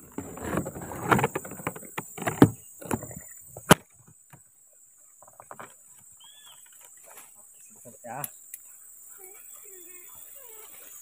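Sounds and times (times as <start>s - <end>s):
leaves and grass rustling: 5.0s - 11.0s.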